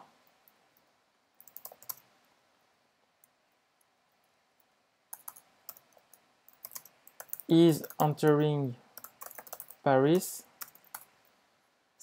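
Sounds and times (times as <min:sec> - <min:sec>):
computer keyboard keystrokes: 0:01.4 - 0:02.1, 0:05.1 - 0:08.3, 0:09.0 - 0:09.8, 0:10.6 - 0:11.1.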